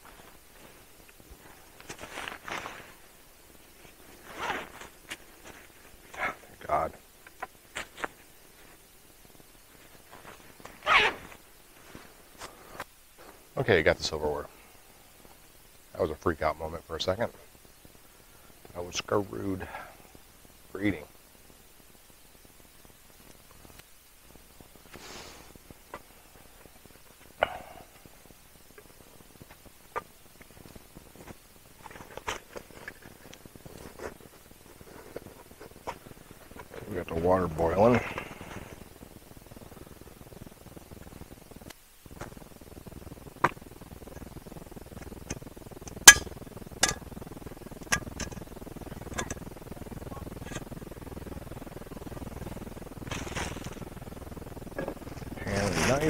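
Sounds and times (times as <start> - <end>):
sharp ringing clink: 46.1 - 47.0.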